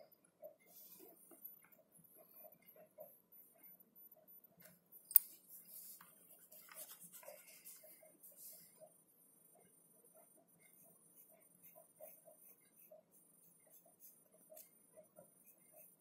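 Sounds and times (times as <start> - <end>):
pencil scratching on paper: 5.2 - 8.8, 10.6 - 16.0.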